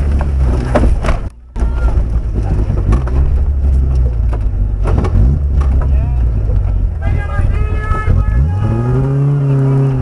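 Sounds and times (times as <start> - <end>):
knocks and thumps from suspension: 0.0 - 7.0
vehicle engine running low: 0.0 - 10.0.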